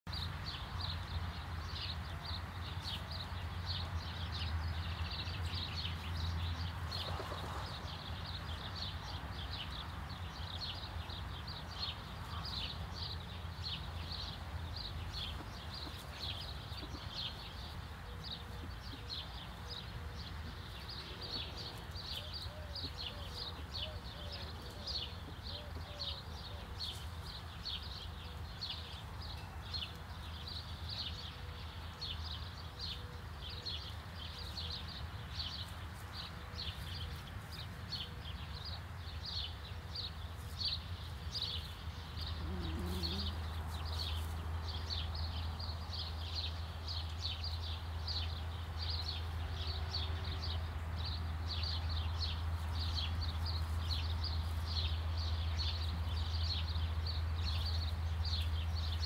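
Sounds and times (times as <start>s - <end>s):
hen clucking: 42.3s - 43.5s.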